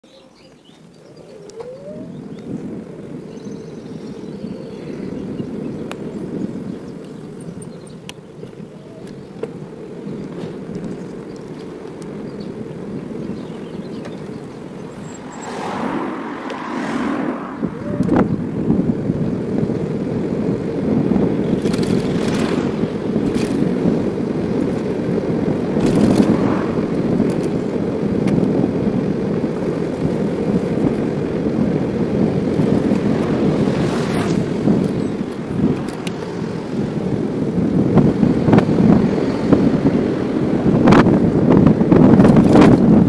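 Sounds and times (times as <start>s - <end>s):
wind buffeting microphone: 0.2s - 43.0s
bicycle rattling over bumps: 0.6s - 43.0s.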